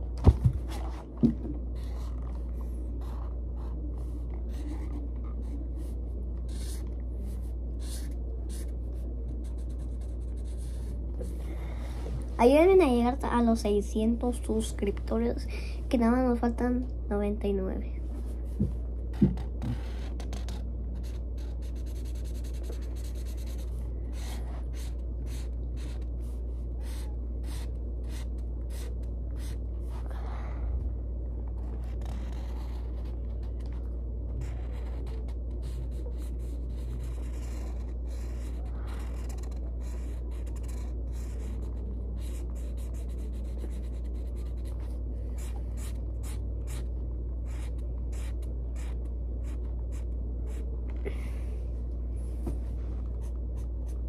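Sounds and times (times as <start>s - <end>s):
steady low hum: 0.0s - 54.0s
pen scratching on paper: 1.8s - 11.0s, 19.2s - 30.0s, 31.6s - 33.8s, 34.4s - 50.6s.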